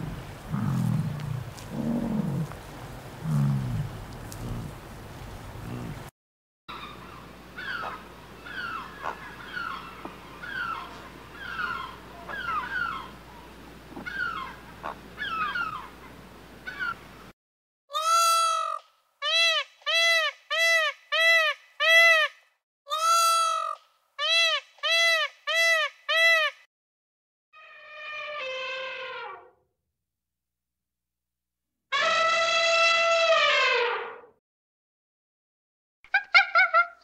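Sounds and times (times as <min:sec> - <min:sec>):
rising and falling animal call: 0:14.0 - 0:15.9, 0:31.9 - 0:34.3, 0:36.1 - 0:37.0.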